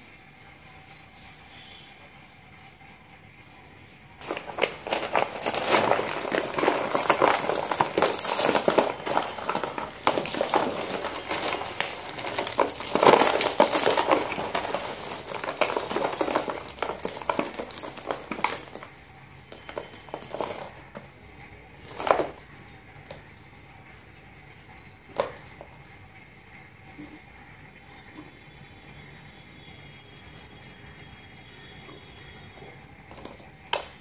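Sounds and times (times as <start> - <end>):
slate sticks clattering: 4.2 - 20.9.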